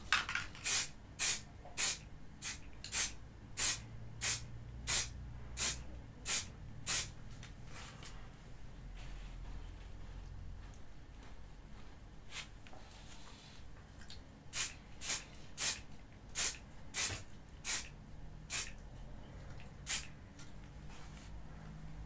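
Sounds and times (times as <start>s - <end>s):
aerosol spray can hissing: 0.6s - 7.1s, 14.6s - 15.8s, 16.4s - 17.9s, 18.5s - 18.7s, 19.9s - 20.1s.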